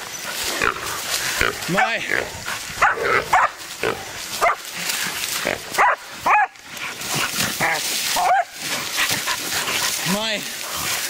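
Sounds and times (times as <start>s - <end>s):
scuffling in grass: 0.0s - 11.0s.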